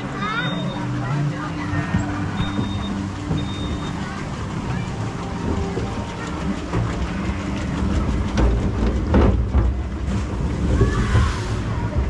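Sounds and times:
conveyor belt rumbling and clattering: 0.0s - 12.0s
knocks under boat hull: 8.3s - 10.2s.

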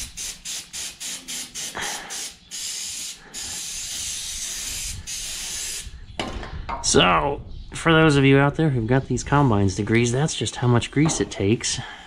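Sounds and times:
grease spraying hiss: 0.0s - 5.8s.

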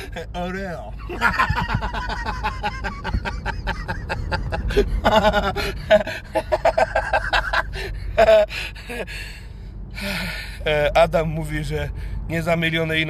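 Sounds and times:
low road rumble: 0.0s - 13.0s
people laughing: 1.1s - 8.4s.

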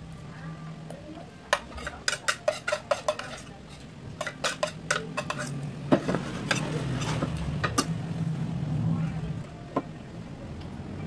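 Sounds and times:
dishes and cutlery clinking: 1.5s - 8.0s.

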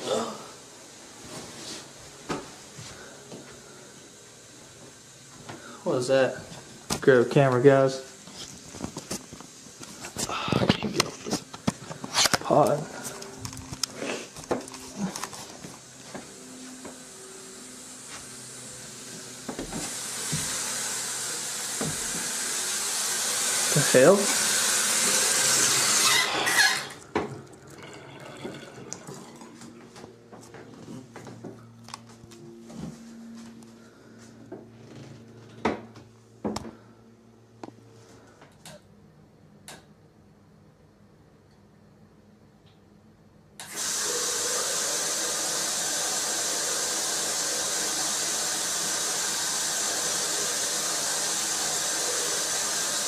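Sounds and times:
steady hiss: 15.5s - 26.6s, 43.6s - 53.0s.

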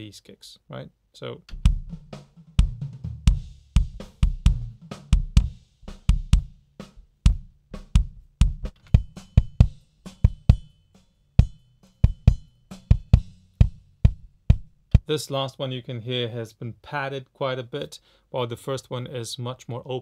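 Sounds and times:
faint drum kit bleed: 0.0s - 20.0s
kick drum hits: 1.5s - 6.6s, 7.2s - 10.7s, 11.4s - 15.1s.

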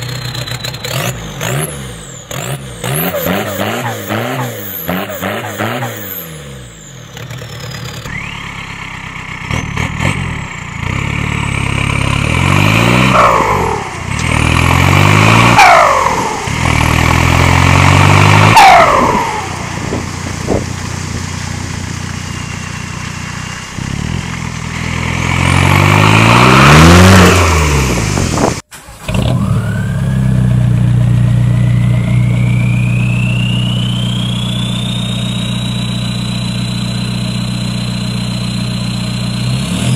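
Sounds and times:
diesel engines revving: 0.0s - 39.9s
engine idling: 6.6s - 12.3s, 18.9s - 25.1s, 28.3s - 39.6s
thin whine rising in pitch: 29.4s - 39.5s.

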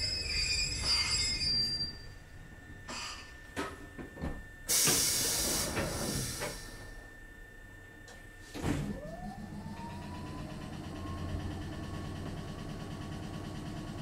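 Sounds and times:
air hiss: 4.7s - 6.8s
machine clunk starting up: 8.6s - 11.8s
low hum: 8.6s - 12.8s.

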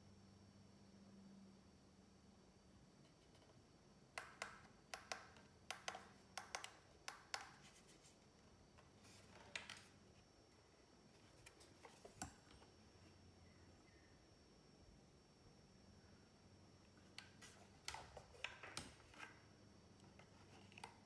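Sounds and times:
clicks and taps on plastic casing: 4.2s - 7.7s.

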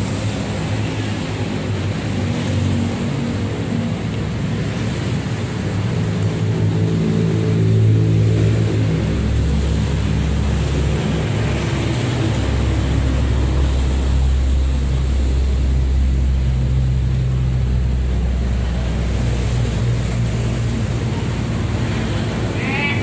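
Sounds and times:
engine running steadily: 0.0s - 23.0s.

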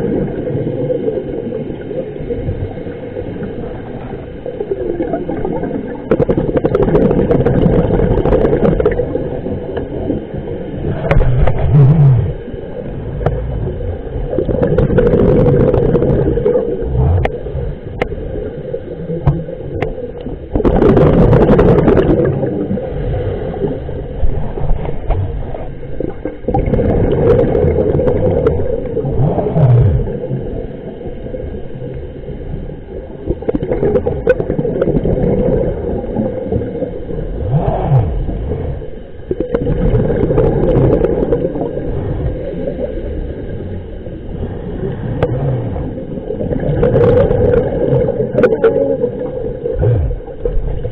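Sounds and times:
exhaled bubbles gurgling underwater: 0.0s - 50.9s.

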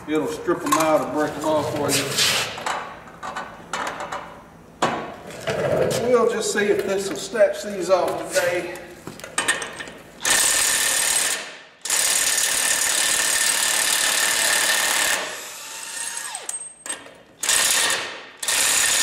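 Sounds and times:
impact wrench hammering: 16.4s - 19.0s.

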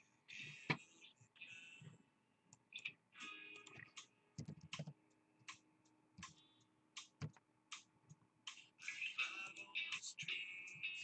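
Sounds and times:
music: 0.0s - 2.0s, 2.7s - 11.0s
laptop keys and mouse clicking: 3.5s - 5.6s.

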